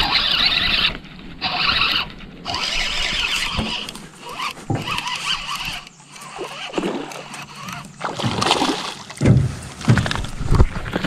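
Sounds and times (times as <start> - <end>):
fishing reel whirring: 0.0 - 8.5.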